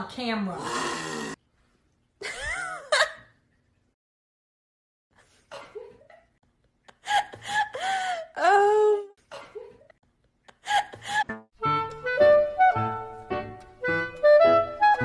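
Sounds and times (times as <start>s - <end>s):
person laughing: 2.2s - 3.3s.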